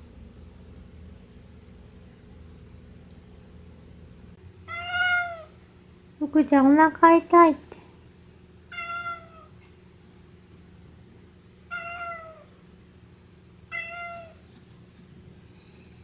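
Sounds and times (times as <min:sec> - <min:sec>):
cat meowing: 0:04.7 - 0:05.6, 0:08.7 - 0:09.5, 0:11.7 - 0:12.5, 0:13.7 - 0:14.4.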